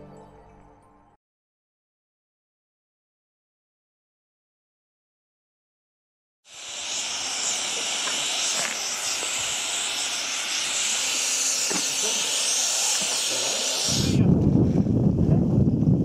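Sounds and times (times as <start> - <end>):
steady high hiss: 6.5 - 14.3
wind rumble on microphone: 14.1 - 16.0.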